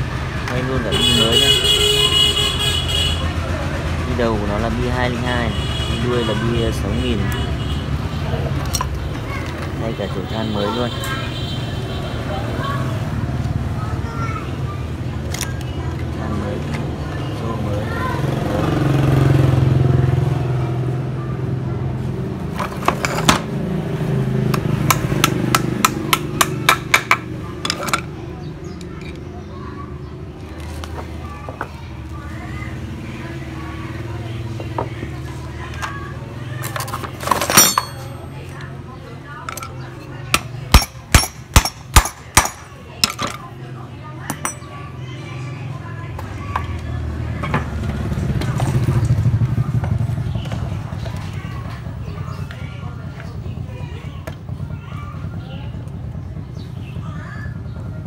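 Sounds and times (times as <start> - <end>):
engine humming: 11.3 - 58.0
metal parts clicking and clinking: 22.6 - 23.5, 26.7 - 28.2, 36.6 - 38.6, 39.4 - 39.8, 44.3 - 44.6
sharp metal knocks: 24.5 - 28.1, 37.2 - 38.2, 40.3 - 43.4, 44.3 - 44.7.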